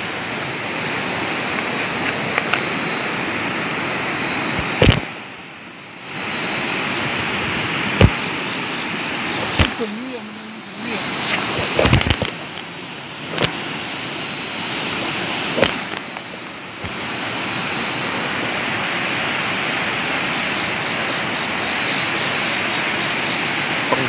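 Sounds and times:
high whine: 0.0 - 24.0
river water rushing: 0.0 - 24.0
sharp clicks: 9.5 - 9.8.

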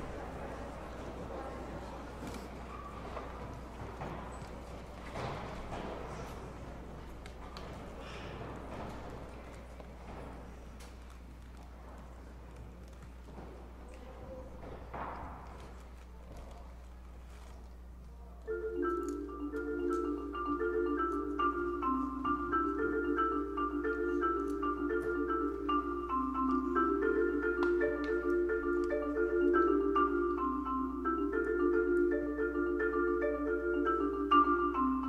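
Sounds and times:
solo marimba: 18.5 - 35.0.

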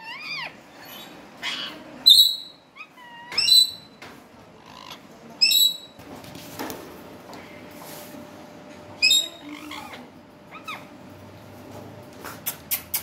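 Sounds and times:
parakeet screeches: 9.0 - 10.9.

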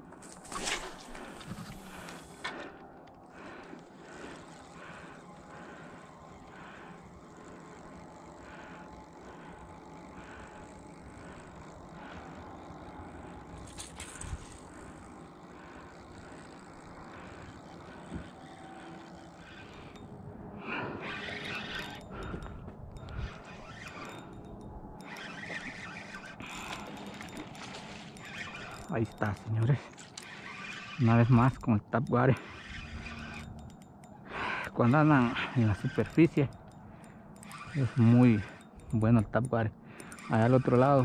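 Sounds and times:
rustling and scraping: 0.0 - 2.7
fishing reel whirring: 0.2 - 41.0.

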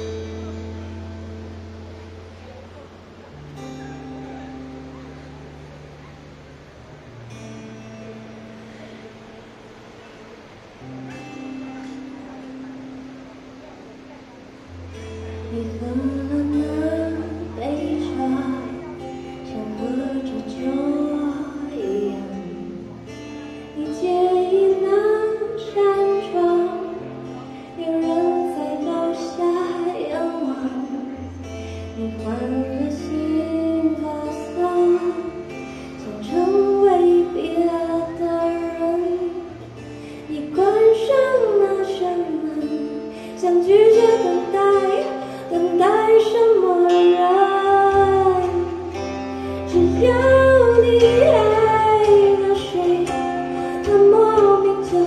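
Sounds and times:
acoustic guitar strummed and picked: 0.0 - 55.0
woman singing slow song: 14.7 - 55.0.

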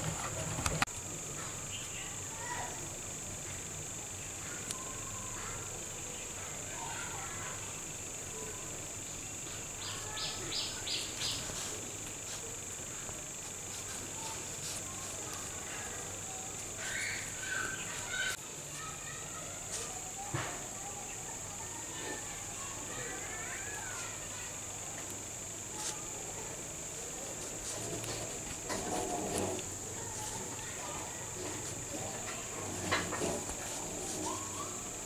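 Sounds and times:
insect chirps: 0.0 - 35.0
high-pitched insect drone: 0.1 - 35.0
faint handling sounds: 11.2 - 20.7, 23.9 - 35.0.

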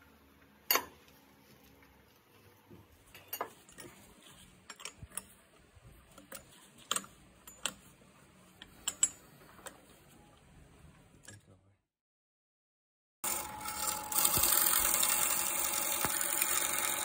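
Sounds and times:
wood clicking in metal lathe chuck: 13.3 - 17.0.

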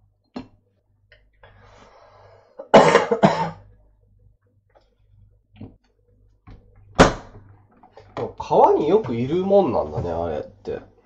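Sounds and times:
person coughing: 2.6 - 3.7.

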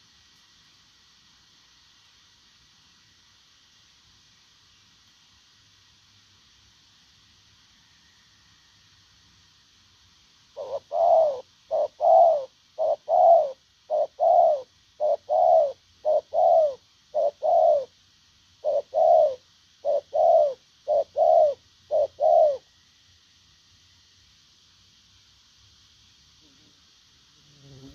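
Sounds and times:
dove cooing: 10.6 - 18.0, 18.6 - 22.7.

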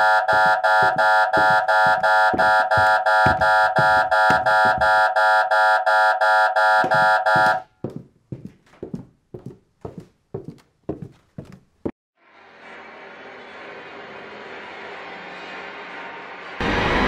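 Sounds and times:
footsteps thudding: 0.0 - 5.1, 6.8 - 12.0
electronic alarm beeping: 0.0 - 7.6.

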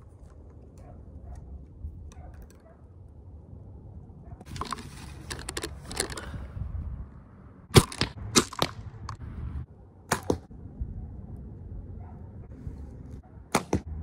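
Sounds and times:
bow shot crack: 10.1 - 10.5, 13.5 - 13.9.

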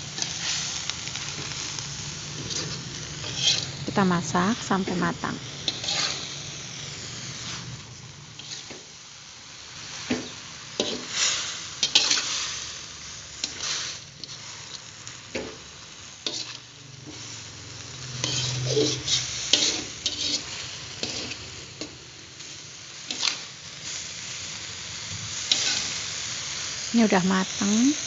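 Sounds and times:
frying sizzle: 0.0 - 28.0
spatula scraping metal wok: 0.1 - 3.9, 4.9 - 6.5, 8.3 - 8.9, 10.1 - 12.6, 16.2 - 17.3, 18.0 - 21.9, 23.0 - 23.6, 25.4 - 26.0.

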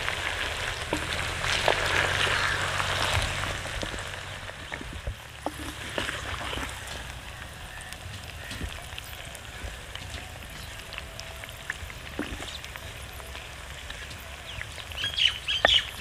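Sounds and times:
frying sizzle with crackles: 0.0 - 16.0
wooden spoon scraping a pot: 0.8 - 7.5.

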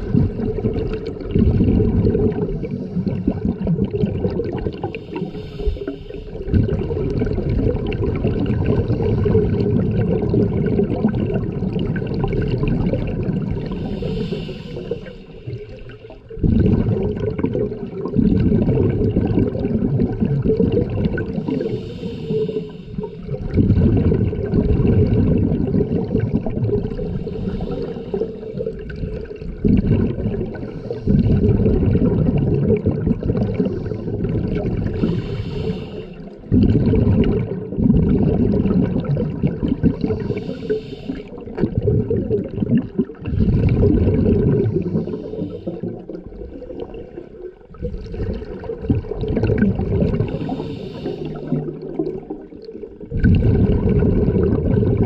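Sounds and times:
exhaled bubbles underwater: 0.0 - 55.0
regulator inhalation hiss: 4.9 - 6.4, 13.6 - 15.5, 21.4 - 23.3, 27.1 - 28.7, 35.0 - 36.3, 40.1 - 41.4, 44.8 - 46.1, 50.3 - 51.7.

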